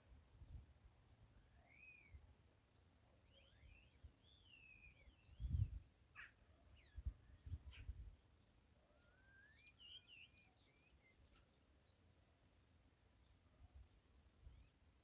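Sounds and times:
starling whistling song: 0:01.6 - 0:02.2, 0:09.1 - 0:11.1.

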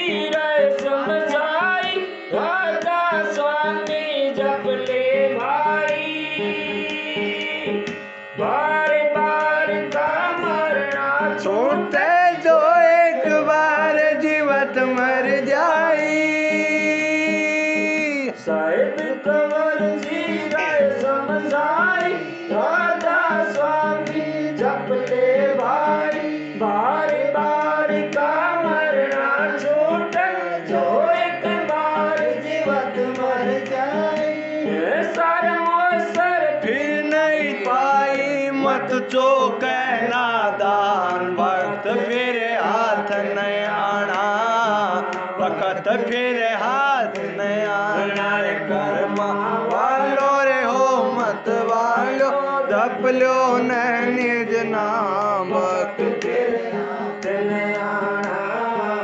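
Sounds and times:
men singing devotional song: 0:00.0 - 0:59.0.

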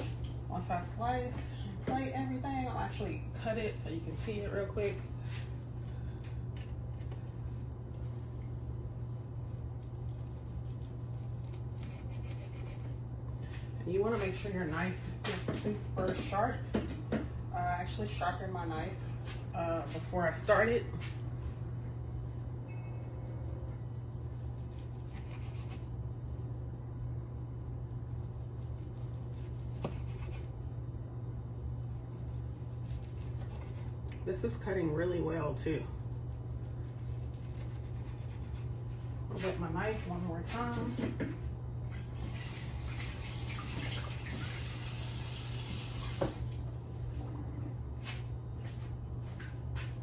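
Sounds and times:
steady low hum: 0:00.0 - 0:50.0
kitchen tap running: 0:41.9 - 0:46.7.

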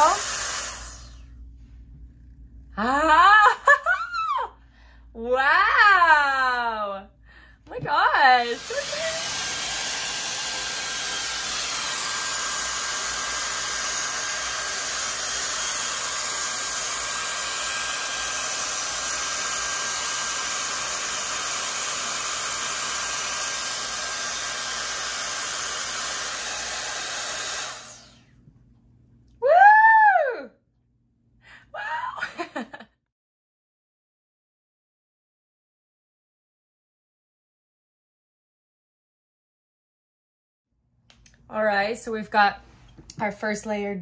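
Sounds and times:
hair dryer brush blowing: 0:00.0 - 0:01.3, 0:07.8 - 0:28.4
high-pitched exclamation: 0:29.4 - 0:30.6, 0:31.8 - 0:32.2.

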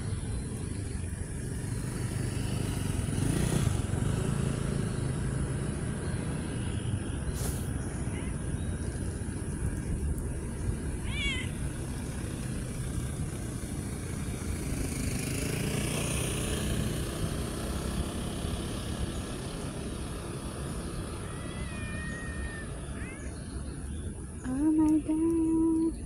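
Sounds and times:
vehicle passing: 0:00.0 - 0:24.6
background traffic: 0:00.0 - 0:26.0
cat meowing: 0:11.0 - 0:11.6, 0:21.2 - 0:23.4.

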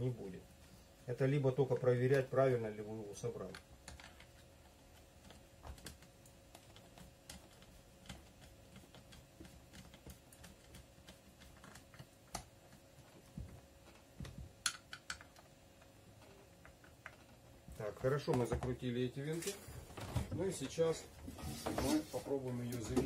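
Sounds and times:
screwdriver clicks and metallic taps: 0:14.6 - 0:15.9.

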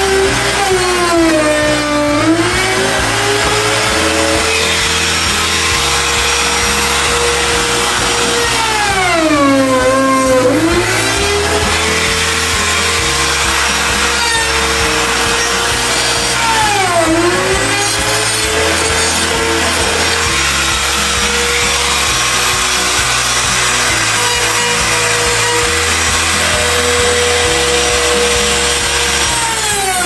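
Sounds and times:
electric router cutting wood: 0:00.0 - 0:30.0.

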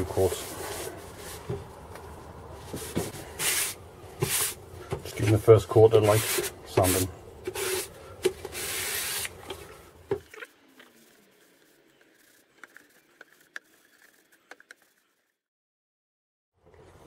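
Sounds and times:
sandpaper rubbing wood: 0:02.8 - 0:04.6, 0:06.0 - 0:07.9, 0:08.5 - 0:09.3.

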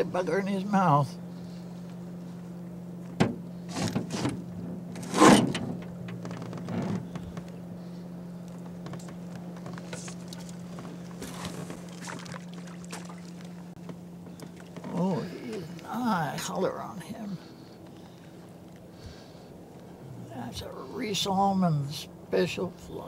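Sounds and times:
steady low hum: 0:00.0 - 0:23.0
fish thrashing and splashing: 0:10.0 - 0:13.8.

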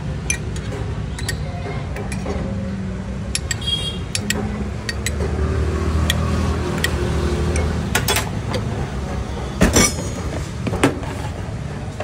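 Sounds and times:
spoon clinking against glasses: 0:01.2 - 0:01.5.

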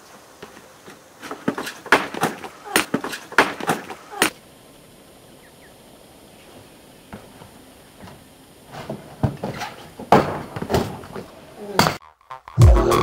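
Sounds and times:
unicycle tyre knocking on wooden pallets: 0:00.4 - 0:04.3, 0:07.1 - 0:12.0
unicycle dropping onto road: 0:07.1 - 0:11.2.

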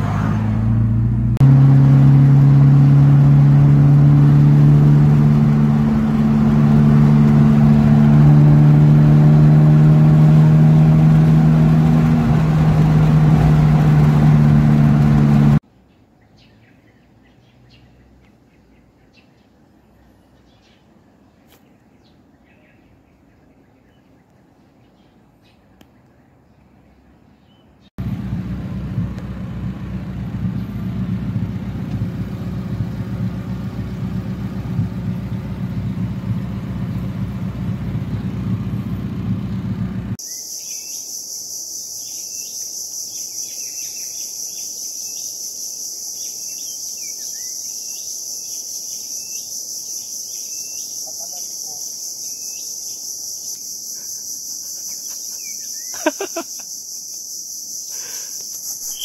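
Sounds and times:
bird chirps: 0:40.2 - 0:59.0
high insect drone: 0:40.2 - 0:59.0.

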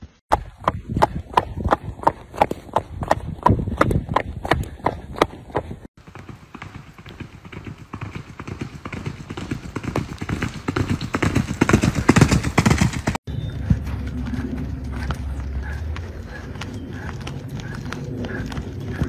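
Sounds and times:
horse hoofbeats on gravel: 0:00.3 - 0:19.0
low rumble: 0:13.3 - 0:19.0.

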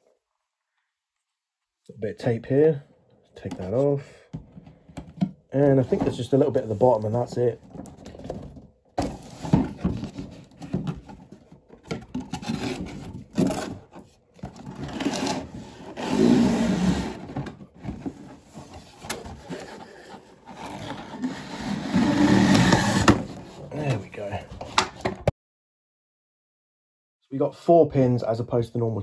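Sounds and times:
cardboard box rustling: 0:05.8 - 0:21.4.

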